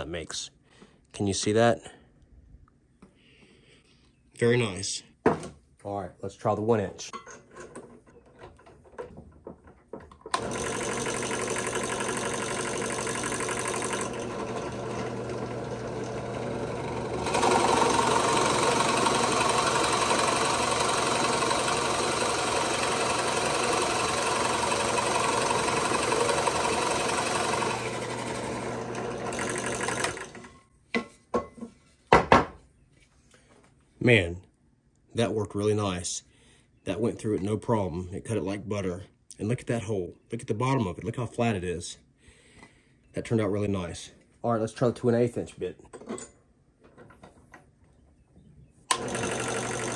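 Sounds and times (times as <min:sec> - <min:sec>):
drill bit boring into wood: 0:10.3 - 0:30.5, 0:48.9 - 0:49.9
drill press motor humming: 0:10.3 - 0:30.6, 0:48.9 - 0:49.9.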